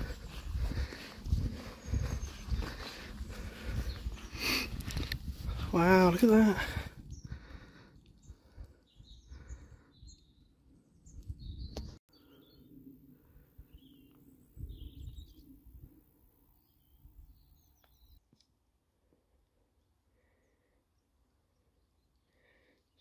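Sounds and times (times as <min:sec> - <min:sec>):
birds chirping: 0:00.0 - 0:13.0, 0:13.6 - 0:15.8.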